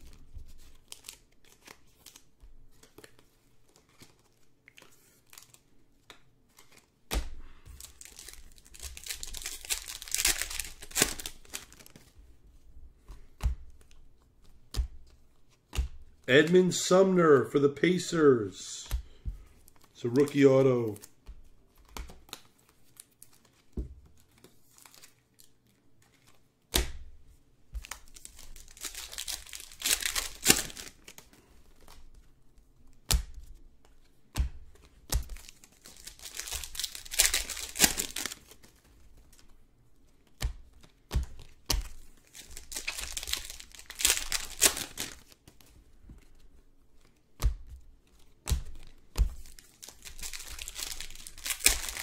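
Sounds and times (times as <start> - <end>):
card pack wrappers ripping: 0.0 - 3.0, 7.8 - 12.1, 19.8 - 21.2, 27.8 - 32.0, 35.2 - 39.4, 41.4 - 45.4, 48.7 - 52.0.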